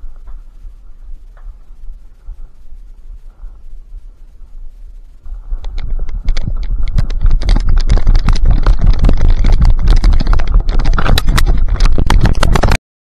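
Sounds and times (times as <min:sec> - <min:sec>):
dry brush crackling and snapping: 0:05.5 - 0:12.8
heavy rumbling knocks on camera: 0:05.5 - 0:12.8.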